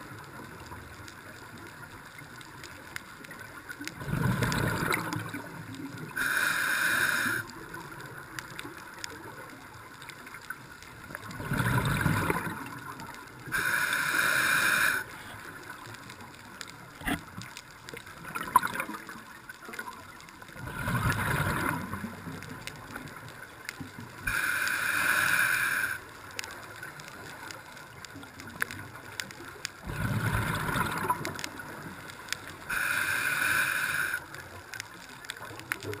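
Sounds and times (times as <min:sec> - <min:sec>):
exhaled bubbles burbling: 0:03.9 - 0:06.2, 0:11.2 - 0:13.1, 0:18.0 - 0:19.2, 0:20.6 - 0:22.9, 0:29.8 - 0:31.8
regulator inhalation hiss: 0:06.1 - 0:07.5, 0:13.5 - 0:15.4, 0:24.2 - 0:26.1, 0:32.7 - 0:34.4.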